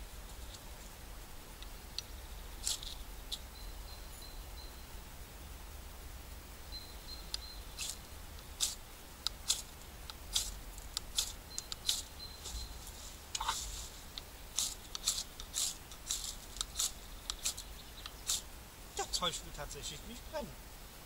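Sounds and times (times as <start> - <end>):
knife scraping ferrocerium rod: 14.6 - 18.4.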